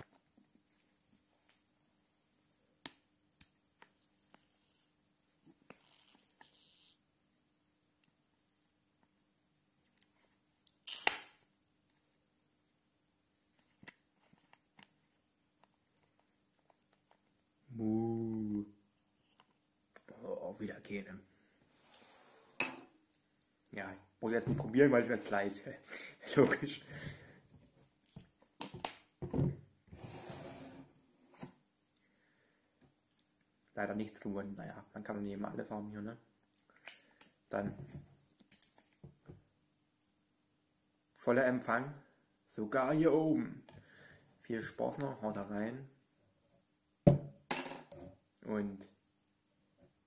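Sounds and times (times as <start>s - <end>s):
plastic cap crackle: 5.6s - 7.0s, 9.9s - 11.4s.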